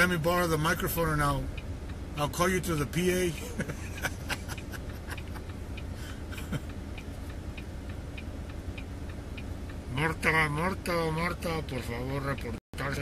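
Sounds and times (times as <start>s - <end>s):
turn-signal indicator ticking: 0.0s - 13.0s.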